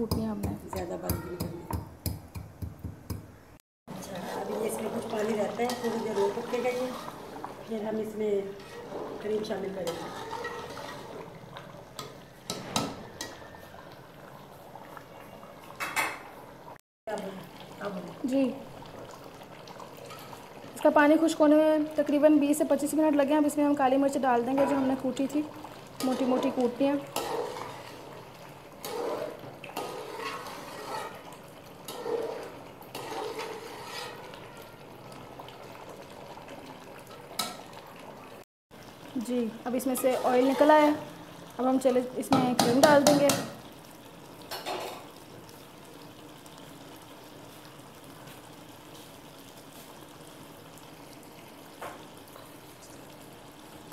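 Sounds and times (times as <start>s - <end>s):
sauce bubbling in a pot: 3.9s - 53.9s
metal spatula scraping pot: 4.0s - 13.4s, 26.0s - 34.6s, 39.8s - 41.1s
wooden spoon stirring thick gravy: 9.9s - 11.3s, 26.0s - 34.5s
spoon knocking against pot: 42.3s - 43.6s.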